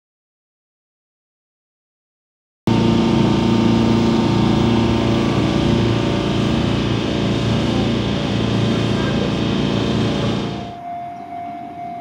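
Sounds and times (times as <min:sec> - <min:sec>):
water rushing along hull: 0:02.7 - 0:11.0
boat engine running: 0:02.7 - 0:11.2.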